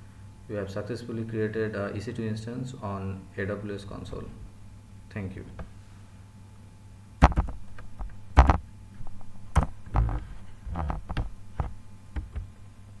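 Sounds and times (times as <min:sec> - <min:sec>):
low mains hum: 0:00.0 - 0:13.0
irregular knocks and clicks: 0:07.2 - 0:12.5.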